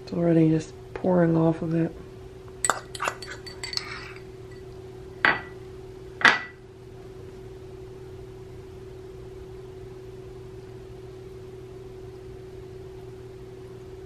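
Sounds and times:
fork clinking against a plate: 0:02.6 - 0:04.7.

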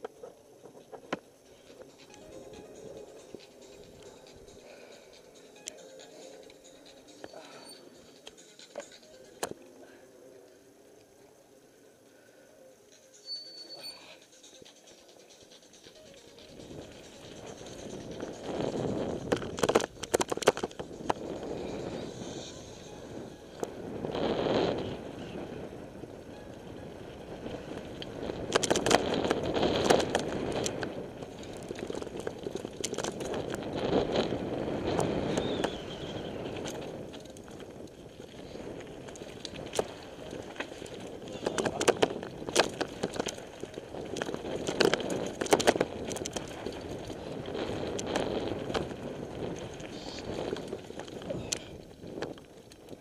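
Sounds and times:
bike rattling over bumps: 0:14.4 - 0:53.0
bike tyres rumbling on dirt: 0:16.4 - 0:53.0.

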